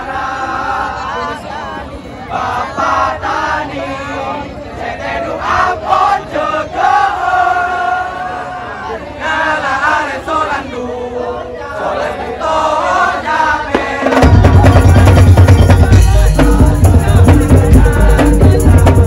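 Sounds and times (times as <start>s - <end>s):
group of voices singing: 0.0s - 19.0s
drum ensemble with melody: 13.7s - 19.0s.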